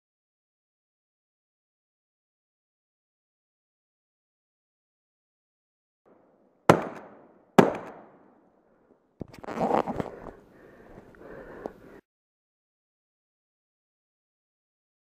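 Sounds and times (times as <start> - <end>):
gunshots with echo: 6.7 - 8.2.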